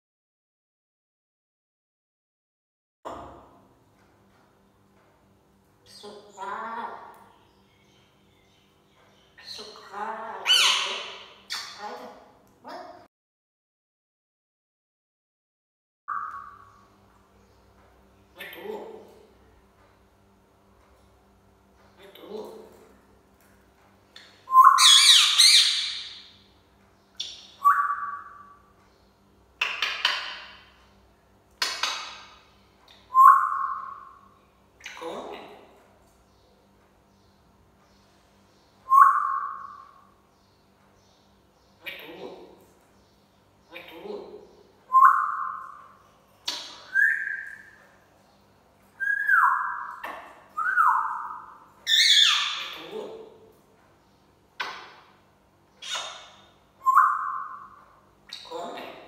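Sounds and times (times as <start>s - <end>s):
parrot squawk: 9.4s - 11.9s, 24.5s - 26.2s, 49.0s - 53.0s, 55.8s - 57.7s
parrot screeches: 10.4s - 11.2s, 51.9s - 52.7s
parrot whistling: 24.5s - 26.0s, 27.6s - 28.4s, 33.1s - 34.0s, 38.9s - 39.8s, 44.9s - 45.7s, 46.9s - 47.7s, 49.0s - 50.0s, 50.6s - 52.7s, 56.8s - 57.7s.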